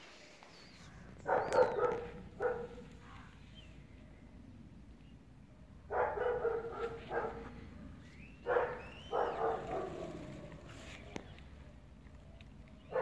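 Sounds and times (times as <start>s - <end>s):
bird chirping: 0.4s - 4.0s, 5.9s - 13.0s
dog barking: 1.2s - 2.9s, 5.9s - 7.6s, 8.4s - 10.2s.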